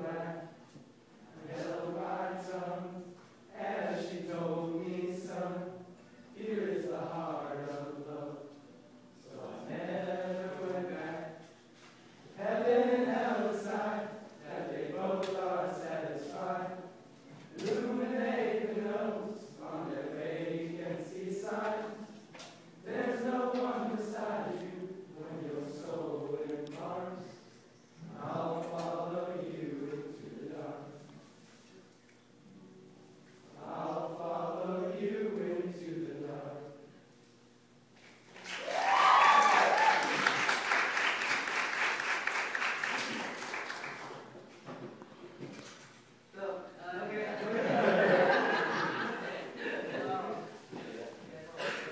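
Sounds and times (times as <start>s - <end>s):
young men singing together: 1.3s - 5.8s, 6.4s - 8.4s, 9.3s - 11.4s, 12.4s - 16.9s, 17.5s - 22.2s, 22.8s - 27.3s, 28.1s - 30.9s, 33.6s - 36.6s
group applauding: 38.3s - 44.3s
people whooping: 38.4s - 40.6s.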